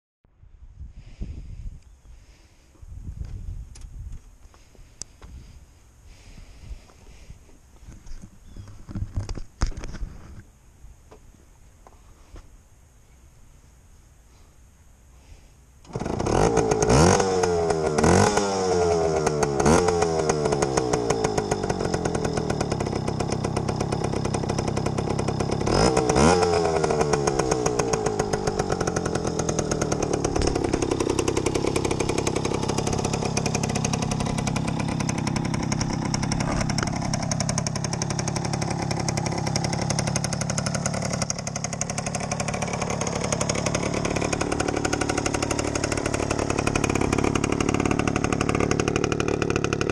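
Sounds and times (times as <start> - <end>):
two-stroke engine revving and idling: 15.8 - 49.9.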